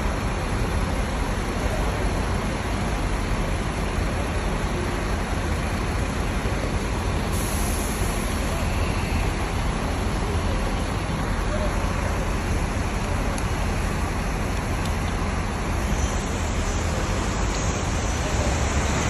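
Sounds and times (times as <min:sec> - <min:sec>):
buses idling rumble: 0:00.0 - 0:19.0
high hiss: 0:07.3 - 0:09.4.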